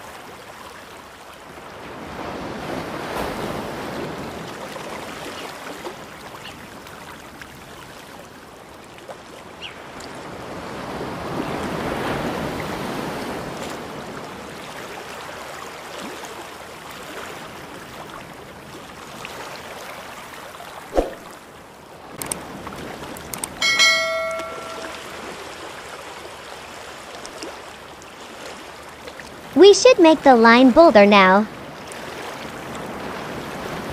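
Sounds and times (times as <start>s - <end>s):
ocean waves washing: 20.7s - 33.9s.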